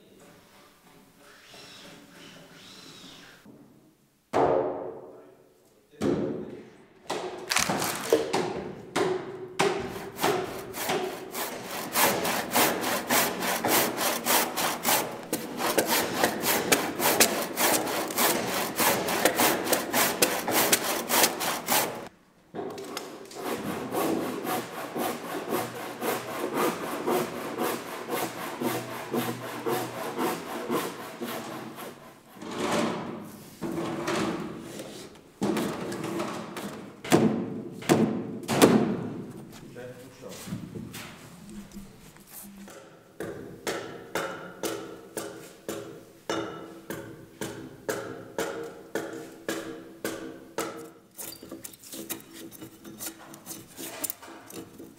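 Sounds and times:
hand saw cutting wood: 9.6 - 22.1, 22.9 - 33.1, 47.0 - 54.9.

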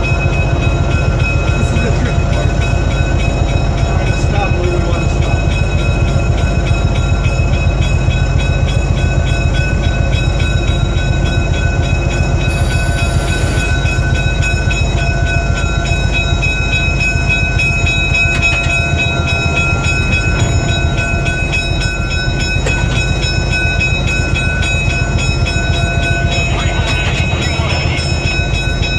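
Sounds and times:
locomotive engine drone: 0.0 - 28.9
high whines: 12.5 - 14.2.

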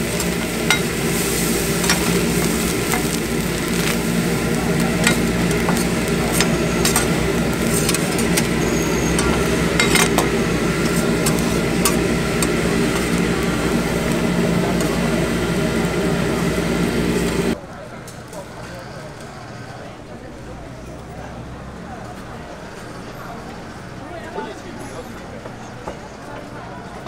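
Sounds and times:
sizzling on hot plate: 0.0 - 17.6
metal spatulas scraping griddle: 0.1 - 4.0, 5.0 - 15.1.

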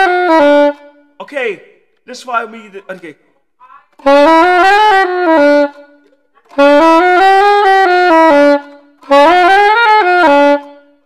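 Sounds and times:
soprano saxophone phrases: 3.7 - 10.8.

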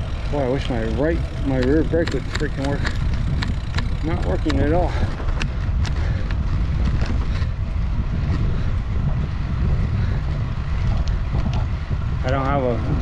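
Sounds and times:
wind buffeting microphone: 0.0 - 13.0
sharp clicks: 1.4 - 6.4.

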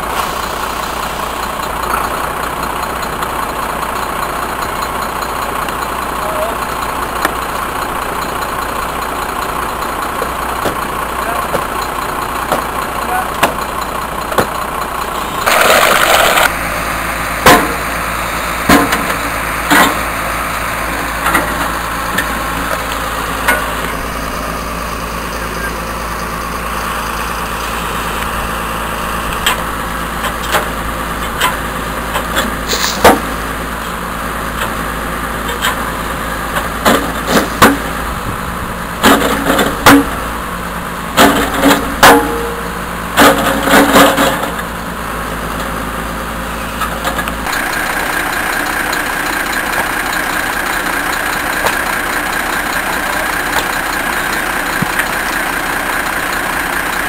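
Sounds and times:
diesel engine running: 0.0 - 57.0
loud hiss: 32.6 - 33.1.

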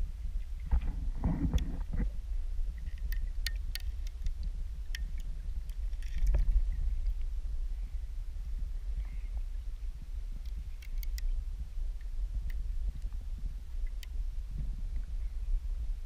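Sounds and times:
muffled underwater rumble: 0.0 - 16.0
sharp clicks: 2.8 - 6.4, 10.4 - 11.3, 13.8 - 14.2.

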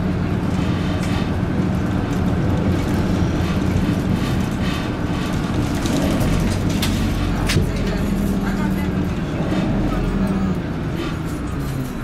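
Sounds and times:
bus diesel engine drone: 0.0 - 12.0
road rumble: 0.0 - 12.0.

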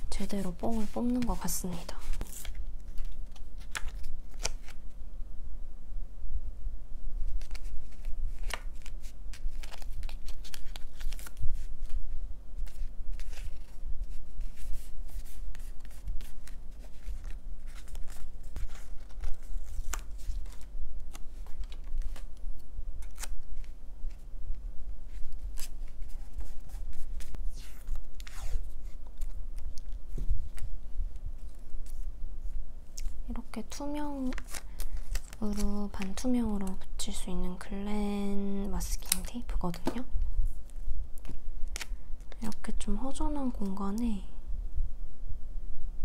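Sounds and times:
steady low hum: 0.0 - 46.0
paper rustling and tearing: 0.2 - 4.9, 7.3 - 22.3, 23.0 - 24.2, 25.1 - 30.7, 34.1 - 36.8.

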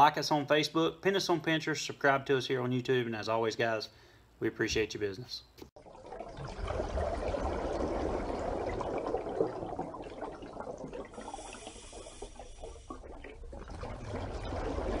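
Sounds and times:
water rushing: 5.9 - 15.0.

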